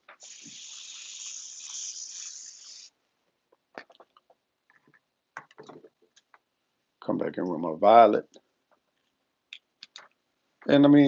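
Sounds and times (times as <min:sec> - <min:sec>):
spray paint hiss: 0:00.0 - 0:03.0.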